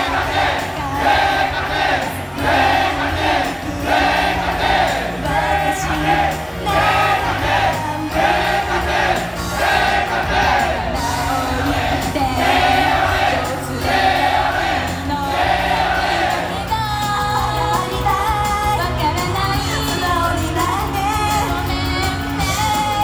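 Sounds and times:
woman singing: 0.0s - 1.6s, 5.1s - 8.6s, 11.0s - 14.1s, 14.8s - 23.0s
group voices: 0.0s - 16.8s
pop backing track: 0.0s - 23.0s.

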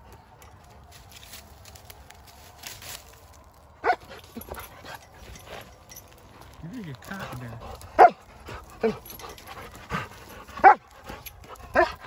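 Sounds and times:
dog barking: 3.8s - 4.1s, 8.0s - 8.2s, 10.6s - 10.8s, 11.7s - 12.0s.

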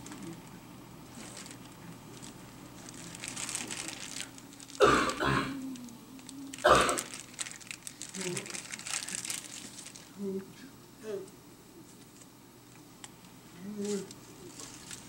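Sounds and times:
person clearing throat: 4.8s - 5.8s, 6.6s - 7.1s.

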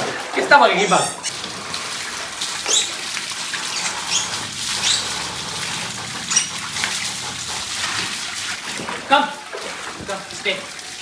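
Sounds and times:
shower water splashing: 0.0s - 11.0s
high-pitched squeaks: 0.8s - 1.6s, 2.6s - 7.1s.

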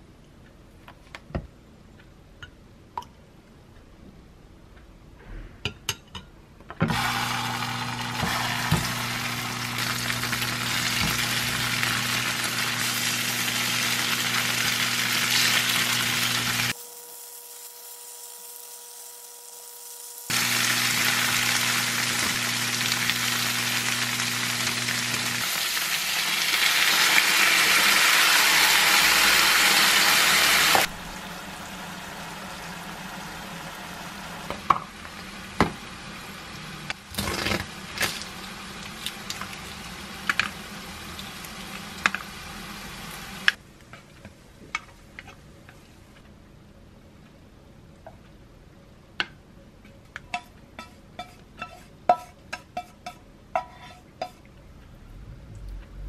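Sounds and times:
tofu sizzling in frying pan: 6.9s - 30.9s.

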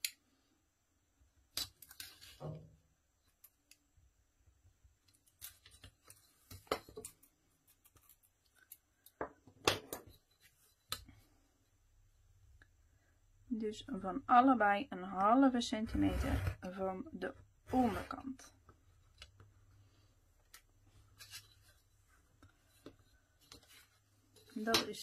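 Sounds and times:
pencil and ruler scrapes on mat: 15.9s - 16.8s, 17.7s - 18.3s.

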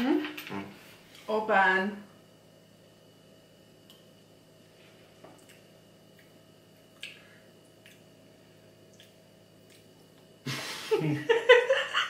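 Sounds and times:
mouth clicks and smacks: 7.0s - 8.1s.

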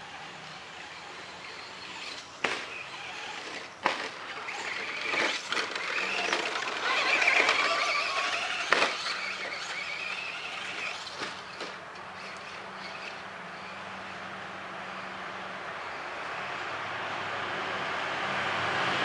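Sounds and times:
toy truck motor whining: 0.0s - 13.8s.

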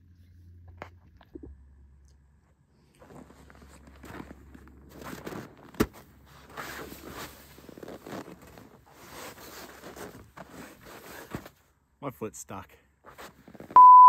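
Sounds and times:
shuffling footsteps: 2.9s - 11.7s
fleece jacket rustling: 3.0s - 11.6s, 13.0s - 13.8s.

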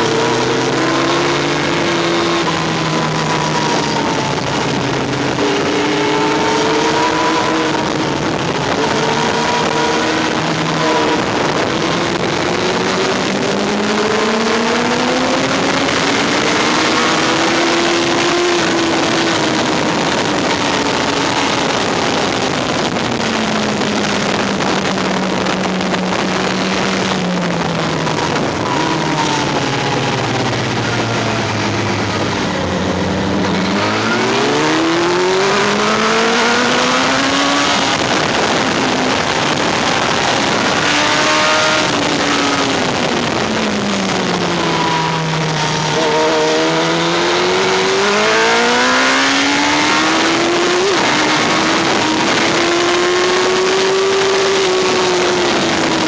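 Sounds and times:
motorcycle engine revving: 0.0s - 56.0s
wind rush: 0.0s - 56.0s.

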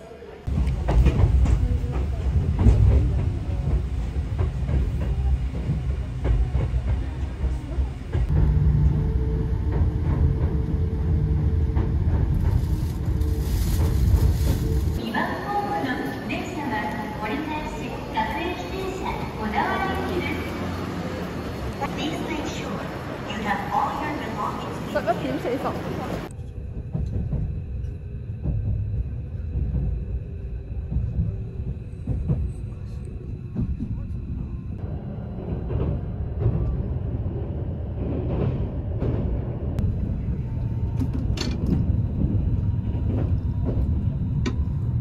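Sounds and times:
moving train rumble: 0.0s - 45.0s
vehicle rumble from inside: 8.2s - 15.0s.

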